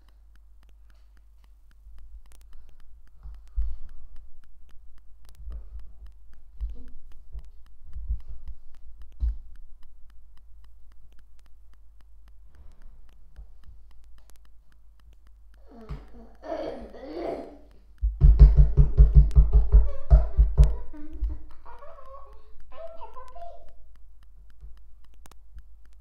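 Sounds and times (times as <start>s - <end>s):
dull low thumps: 18.0s - 21.5s.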